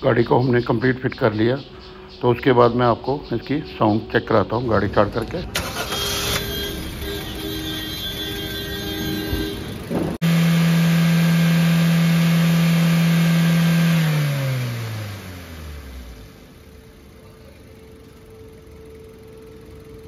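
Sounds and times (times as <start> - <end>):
car engine revving: 4.4 - 17.2.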